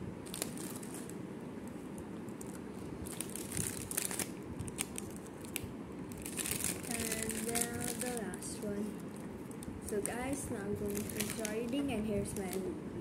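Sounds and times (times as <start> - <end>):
plastic packet crinkling: 0.2 - 1.2, 1.9 - 12.7.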